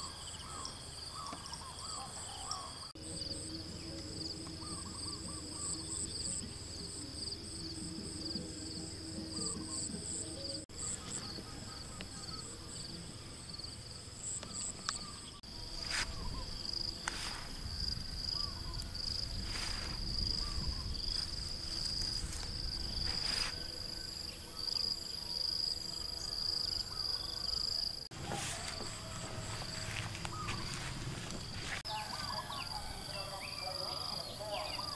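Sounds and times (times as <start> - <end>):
insects trilling: 0.0 - 34.9
rustles: 15.8 - 23.8, 28.1 - 32.4.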